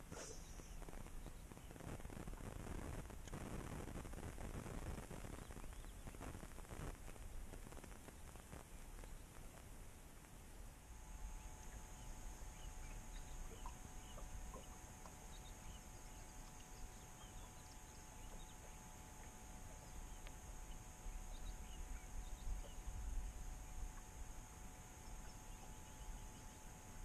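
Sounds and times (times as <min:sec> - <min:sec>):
faint steady hum: 0:00.0 - 0:27.0
distant bird chirps: 0:11.0 - 0:27.0.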